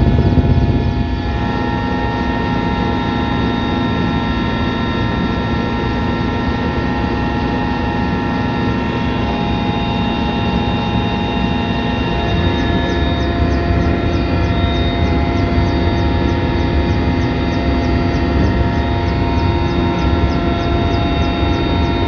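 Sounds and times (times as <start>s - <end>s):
helicopter rotor and engine drone: 0.0s - 22.0s
steady whining tones: 0.0s - 22.0s.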